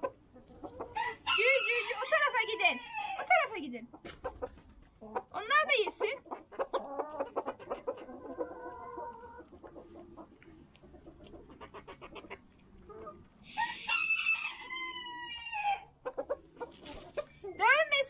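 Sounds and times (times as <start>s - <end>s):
hens clucking: 0.0s - 18.0s
rooster crowing: 1.0s - 3.3s, 13.5s - 15.9s.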